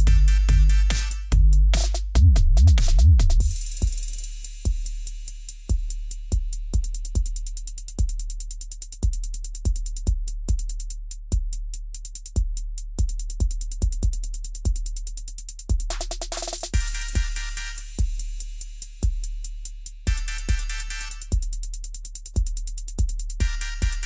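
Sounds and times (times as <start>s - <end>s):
low bass line: 0.0s - 3.9s
kick drum: 0.0s - 5.1s, 5.7s - 24.0s
hi-hat ticks: 0.0s - 24.0s.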